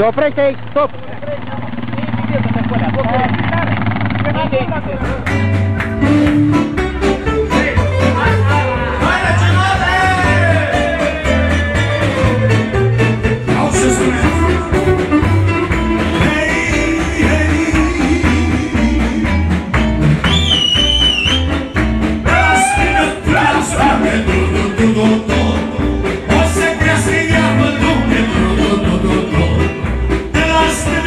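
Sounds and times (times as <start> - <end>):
steady bass beat: 4.8 - 31.0
live band playing dance music: 4.9 - 31.0
person singing: 6.0 - 19.7, 22.2 - 31.0.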